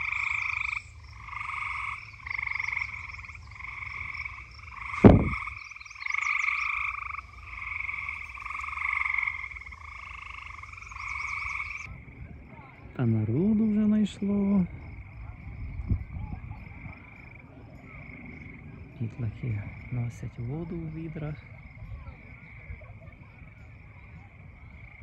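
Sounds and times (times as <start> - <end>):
frogs calling in trills: 0.0 - 25.0
loud thump: 5.0 - 5.5.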